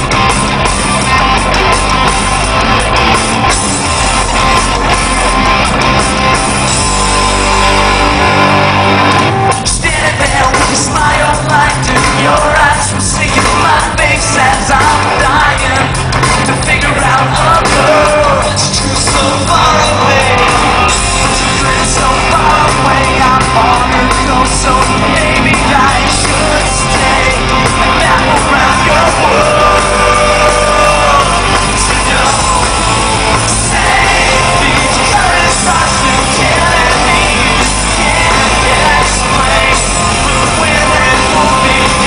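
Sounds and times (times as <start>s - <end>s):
crowd shouting and yelling: 0.0s - 42.0s
live rock band playing: 0.0s - 42.0s
person singing: 9.3s - 42.0s.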